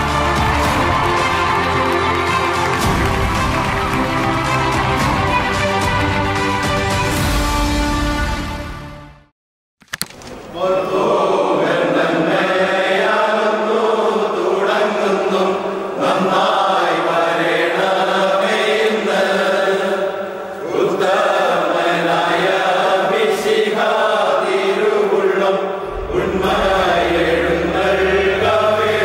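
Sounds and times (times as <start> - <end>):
group singing chant-like song: 10.6 - 29.0.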